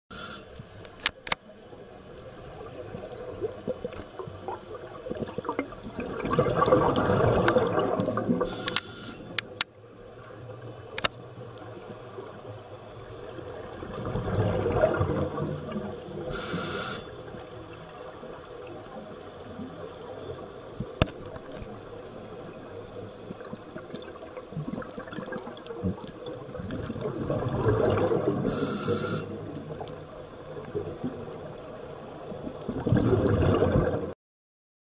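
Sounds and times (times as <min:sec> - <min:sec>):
regulator inhalation hiss: 0:00.1 - 0:00.7, 0:08.4 - 0:09.5, 0:16.3 - 0:17.2, 0:28.4 - 0:29.4
underwater exhaled bubbles gurgling: 0:01.6 - 0:08.8, 0:09.8 - 0:34.1.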